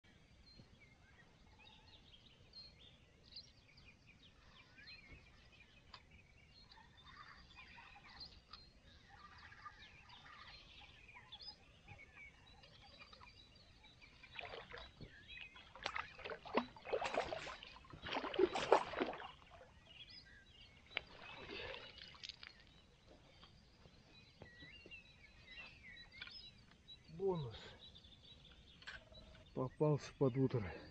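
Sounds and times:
birds singing faintly: 0.0 - 30.9
fish thrashing and splashing: 14.2 - 15.0, 15.6 - 19.7.

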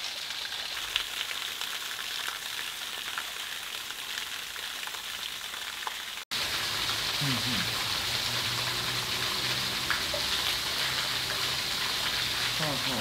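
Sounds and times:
running water hiss: 6.1 - 13.0.

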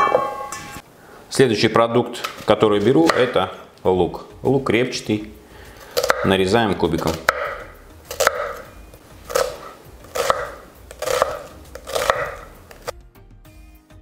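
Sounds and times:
background music: 2.3 - 14.0
knife dicing onion on board: 6.0 - 6.3, 6.9 - 8.7, 9.3 - 12.9.

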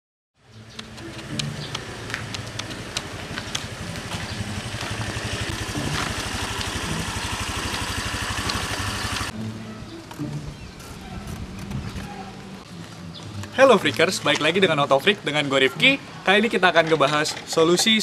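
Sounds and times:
scooter engine running: 0.7 - 9.4.

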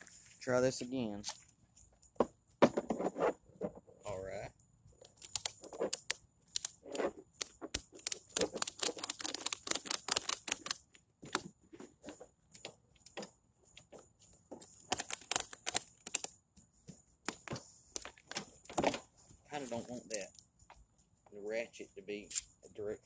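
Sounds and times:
ratchet buckle clicking: 5.0 - 6.8, 7.4 - 10.9, 14.7 - 16.4, 22.3 - 22.6.

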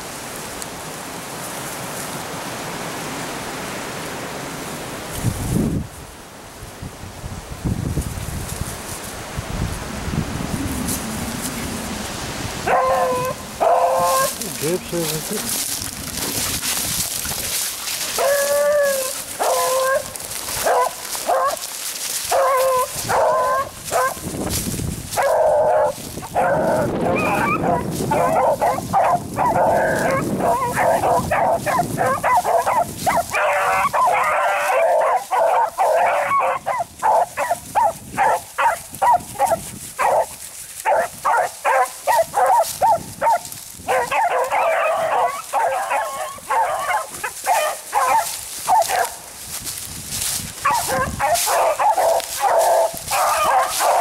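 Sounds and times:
dogs baying and barking: 12.6 - 24.3, 25.1 - 49.3, 50.6 - 54.0.

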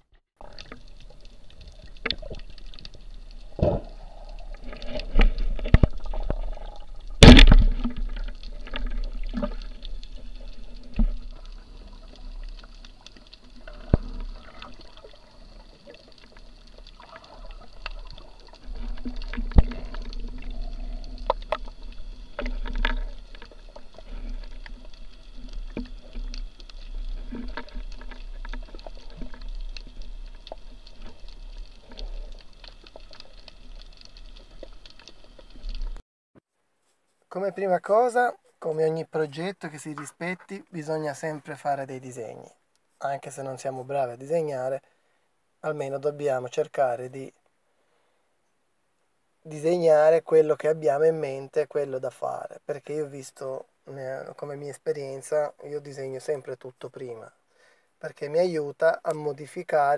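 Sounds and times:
water sloshing underwater: 0.0 - 36.0.

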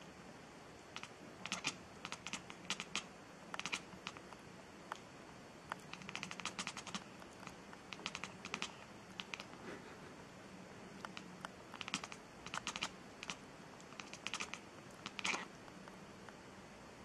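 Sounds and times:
cat chattering: 0.9 - 4.2, 5.8 - 9.8, 11.0 - 15.6.

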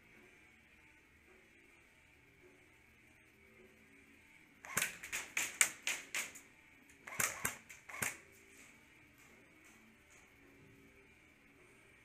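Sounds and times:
airsoft gunfire: 4.6 - 6.4, 7.1 - 8.2.

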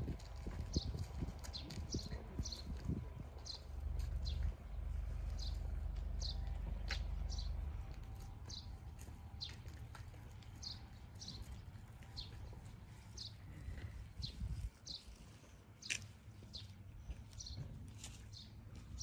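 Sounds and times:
low steady rumble: 0.0 - 14.8.

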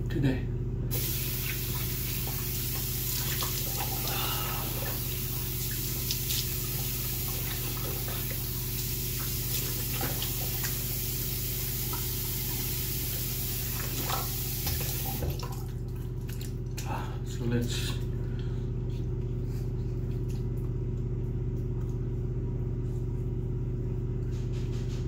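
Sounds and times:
tap water running into sink: 0.9 - 16.6
small splashes and clicks: 13.8 - 17.0.

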